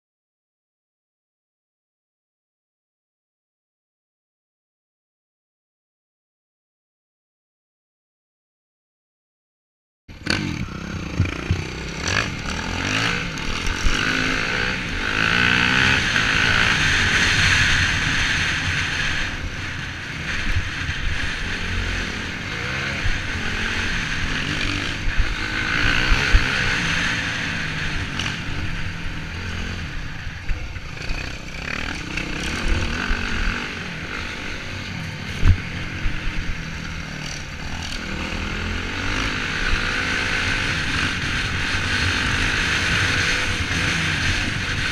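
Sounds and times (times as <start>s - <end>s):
dirt bike engine revving: 10.1s - 44.9s.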